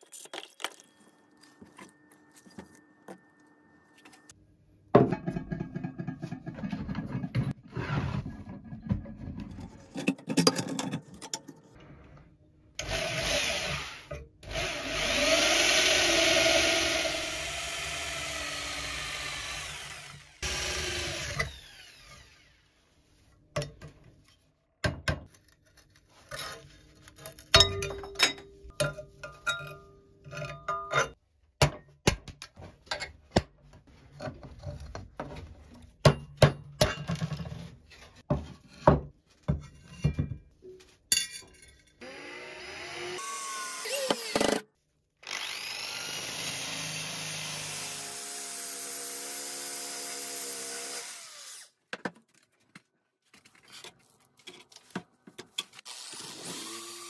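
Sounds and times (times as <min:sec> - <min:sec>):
power drill cutting steel: 0:12.8 - 0:22.6, 0:42.0 - 0:44.6, 0:45.2 - 0:51.8, 0:55.9 - 0:57.0.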